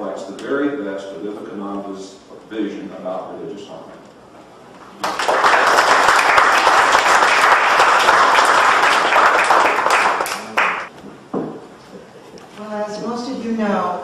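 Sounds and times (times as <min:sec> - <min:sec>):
audience applauding: 0:05.0 - 0:10.9.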